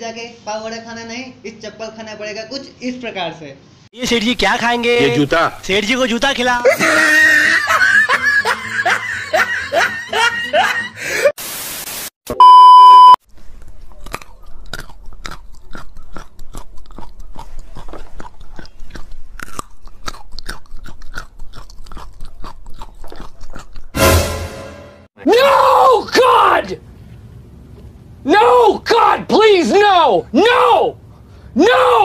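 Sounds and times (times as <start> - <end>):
steady beep: 12.4 - 13.2
crisp chewing crunches: 13.4 - 24.0.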